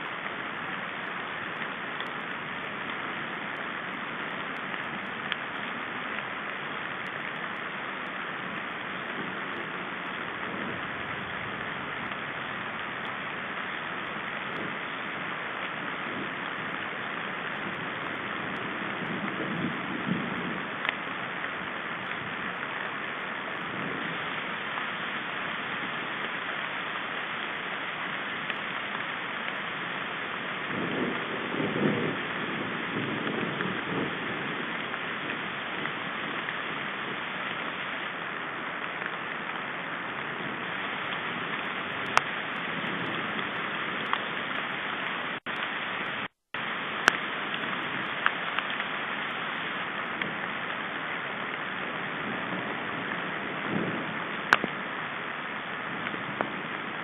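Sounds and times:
rain on forest canopy: 0.0s - 57.0s.

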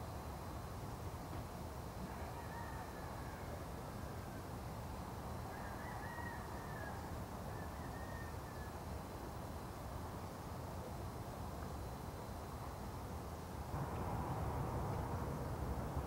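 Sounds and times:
distant traffic hum: 10.8s - 16.0s.

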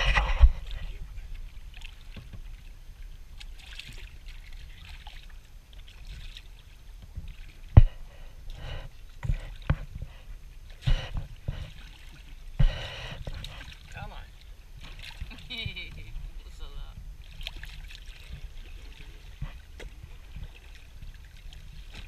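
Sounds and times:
low rumble: 0.0s - 1.8s, 7.7s - 21.9s
water lapping against boat: 0.0s - 22.0s.

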